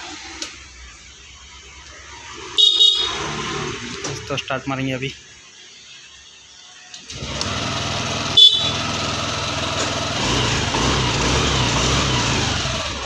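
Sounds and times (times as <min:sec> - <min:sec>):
scooter engine starting and idling: 0:02.1 - 0:04.3, 0:07.0 - 0:13.0
horn beep: 0:02.5 - 0:03.5, 0:08.2 - 0:09.0.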